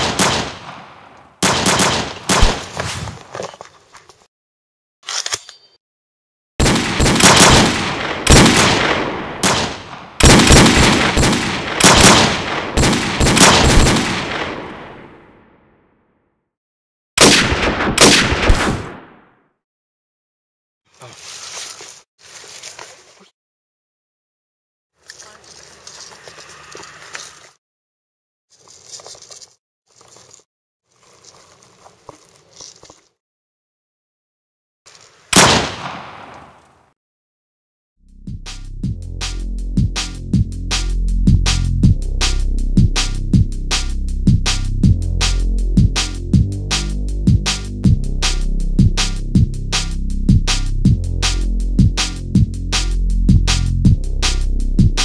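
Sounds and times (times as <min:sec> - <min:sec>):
automatic gunfire bursts: 0:01.4 - 0:02.6, 0:06.6 - 0:08.8, 0:09.4 - 0:14.3
footsteps on dry grass and stones: 0:21.1 - 0:23.2, 0:25.0 - 0:27.4, 0:28.5 - 0:33.2.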